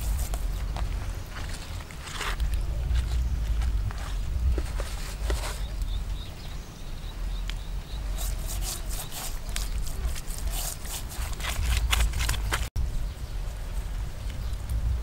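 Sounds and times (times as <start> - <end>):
steady low rumble: 0.0 - 8.2
fingers rasping over fish scales: 8.1 - 12.6.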